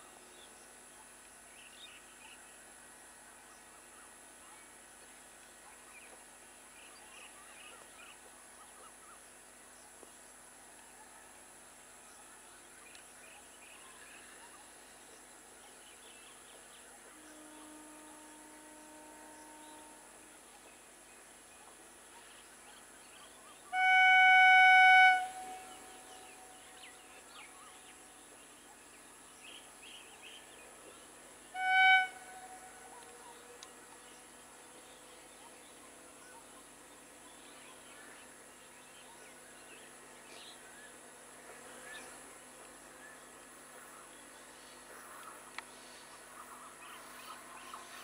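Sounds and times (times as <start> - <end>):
train horn blasts: 17.0 - 20.4, 23.7 - 27.2, 31.5 - 34.4.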